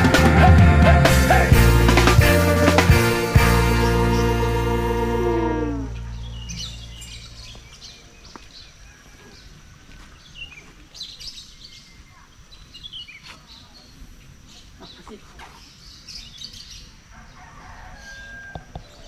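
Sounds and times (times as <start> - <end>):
background music: 0.0 - 7.5
soft outdoor ambience: 1.3 - 19.0
small birds chirping: 5.9 - 17.4.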